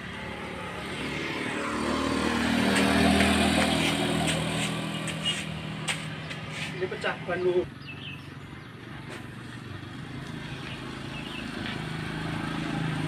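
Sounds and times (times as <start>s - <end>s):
motor scooter driving past: 0.0s - 5.8s, 9.2s - 13.0s.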